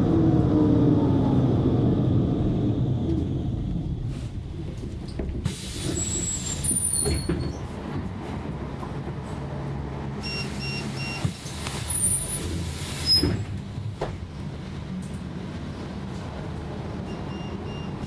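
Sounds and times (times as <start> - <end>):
short electronic beeps: 10.2 - 11.2.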